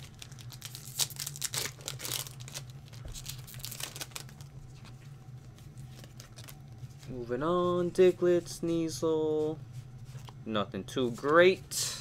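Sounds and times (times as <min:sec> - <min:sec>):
foil wrappers crinkling: 0:00.0 - 0:07.0.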